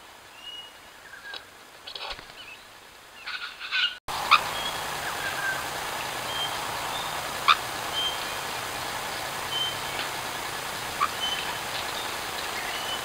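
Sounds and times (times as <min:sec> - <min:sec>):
microphone hiss: 0:00.0 - 0:13.0
bird calls: 0:00.4 - 0:05.6, 0:10.9 - 0:13.0.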